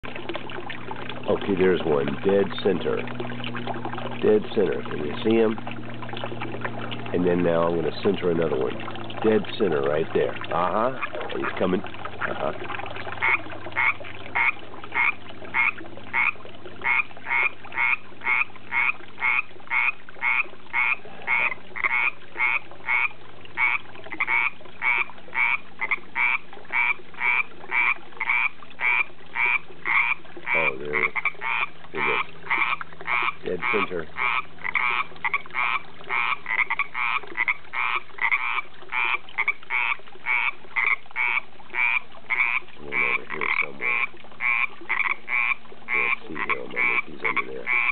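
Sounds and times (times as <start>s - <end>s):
frog calling: 13.2s - 47.9s.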